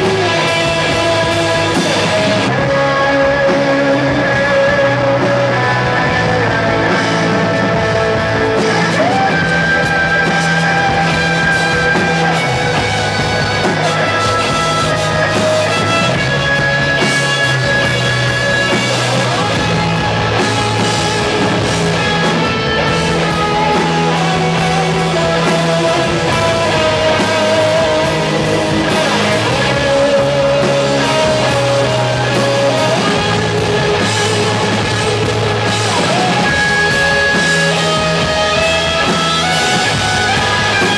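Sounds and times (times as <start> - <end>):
electric guitars: 0.0 - 40.9
rock band playing live: 0.0 - 40.9.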